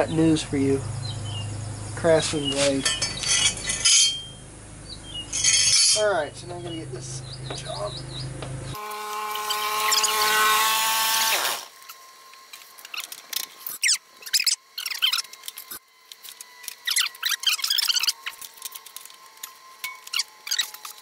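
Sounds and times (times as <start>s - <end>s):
high squeaks of metal: 2.5s - 4.4s, 5.3s - 6.2s, 12.9s - 15.8s, 16.4s - 21.0s
power drill whirring: 8.8s - 21.0s.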